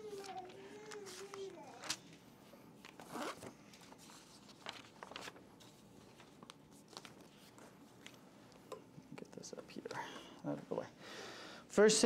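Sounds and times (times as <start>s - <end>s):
paper sheets rustling: 0.0s - 2.2s, 2.8s - 8.2s.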